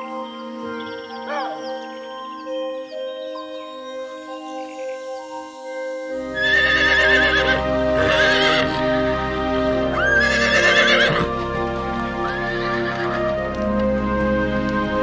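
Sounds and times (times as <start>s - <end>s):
background music: 0.0s - 15.0s
horses whinnying: 6.4s - 8.8s, 10.0s - 11.4s, 12.3s - 13.2s.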